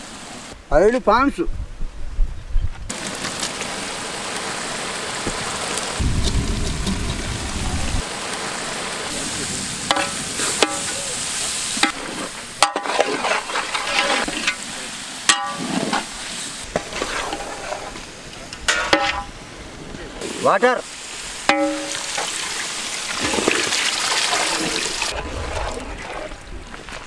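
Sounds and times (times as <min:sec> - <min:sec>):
gravy sizzling in pot: 0:02.9 - 0:19.5, 0:20.2 - 0:25.2
ladle scraping pot: 0:11.8 - 0:14.6, 0:16.7 - 0:18.0.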